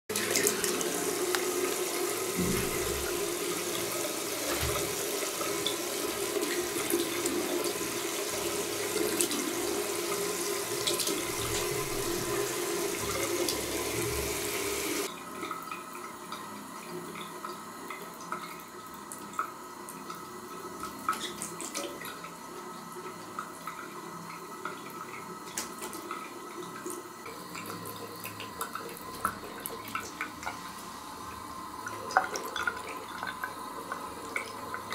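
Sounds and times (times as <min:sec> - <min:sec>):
water drips and splashes: 0:00.1 - 0:09.7, 0:20.8 - 0:22.3
tap water splashing into bowl: 0:02.4 - 0:03.4.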